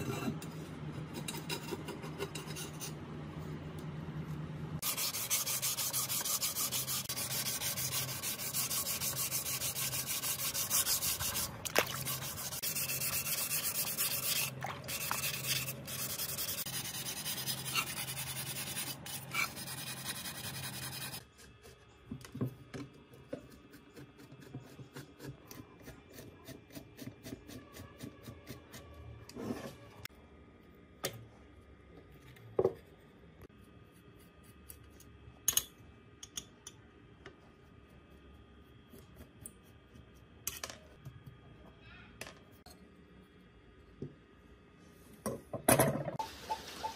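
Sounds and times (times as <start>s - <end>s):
sandpaper rubbing wet metal: 4.8s - 21.2s.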